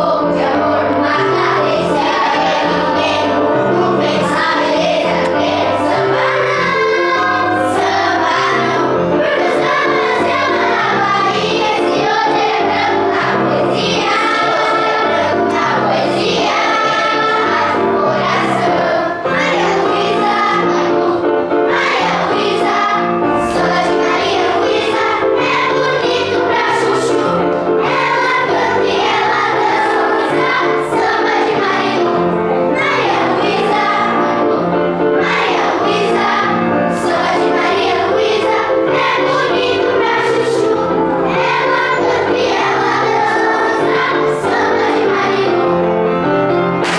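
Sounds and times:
children's choir singing: 0:00.0 - 0:46.9.

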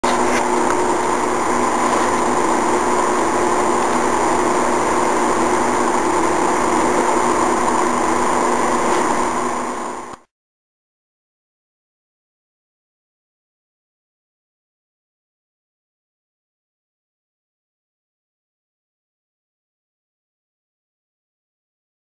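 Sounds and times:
motor hum with whining tones: 0:00.0 - 0:10.3.

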